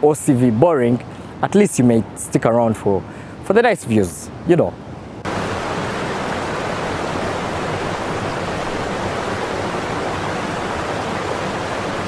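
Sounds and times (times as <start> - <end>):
rapids rushing over rocks: 5.2 - 12.0.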